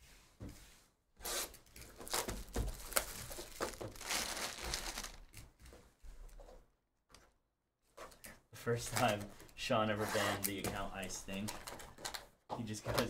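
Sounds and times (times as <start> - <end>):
plastic wrapping crinkling and tearing: 1.3 - 5.6.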